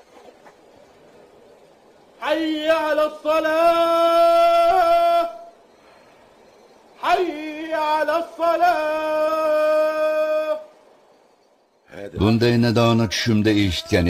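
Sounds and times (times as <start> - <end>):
man chanting call to prayer: 2.2 - 5.6, 7.0 - 10.8, 11.9 - 14.0.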